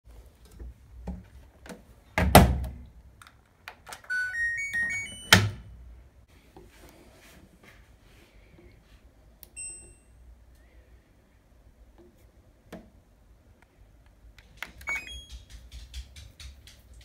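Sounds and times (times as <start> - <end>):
rising beep jingle: 4.1 - 5.4.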